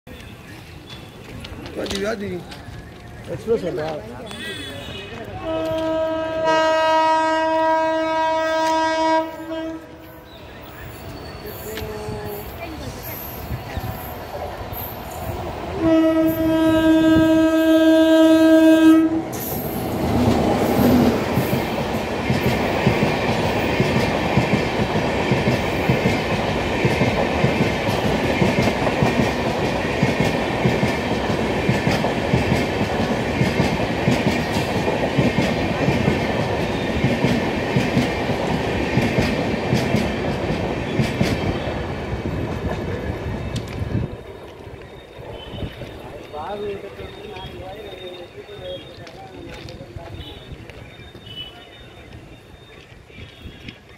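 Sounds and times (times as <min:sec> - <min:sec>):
locomotive air horn: 0:04.3 - 0:10.2, 0:15.8 - 0:19.4
train rushing past: 0:05.4 - 0:50.2.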